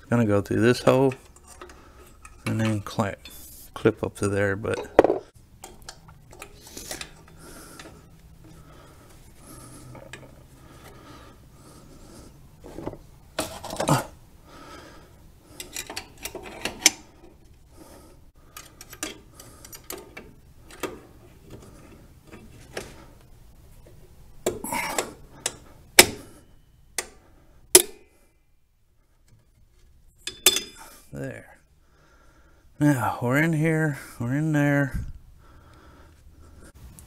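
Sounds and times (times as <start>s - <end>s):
tools scraping and clinking on metal: 0.7s - 8.6s, 15.5s - 17.6s, 18.5s - 23.0s, 29.3s - 31.0s.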